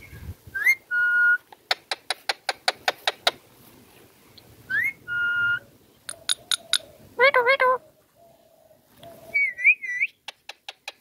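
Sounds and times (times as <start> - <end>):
parrot whistling and chirping: 0.0 - 1.8, 4.7 - 5.6, 9.3 - 10.5.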